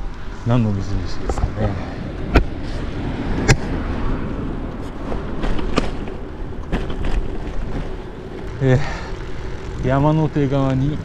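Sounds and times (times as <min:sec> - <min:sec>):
bike tyre rumble: 0:00.0 - 0:11.0
wind on microphone: 0:00.0 - 0:11.0
bike knocking over bumps: 0:05.1 - 0:08.6.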